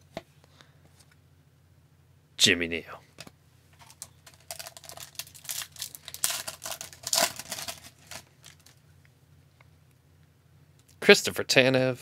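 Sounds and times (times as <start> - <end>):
foil wrapper crinkling: 3.8 - 8.8.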